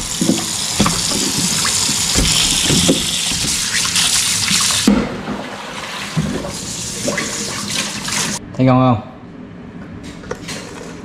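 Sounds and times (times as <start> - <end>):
bowl knocking: 0.0 - 4.2
tap water running into sink: 0.0 - 8.4.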